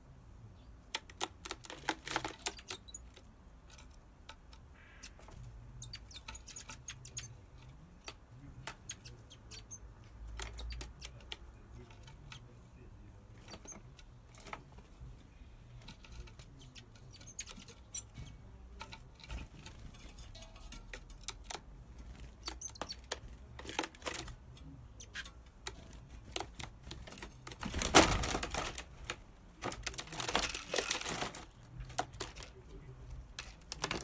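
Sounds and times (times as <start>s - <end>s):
birds tapping on plastic: 0.7s - 15.1s, 15.7s - 34.0s
bird fluttering against plastic: 1.2s - 2.8s, 25.8s - 32.6s.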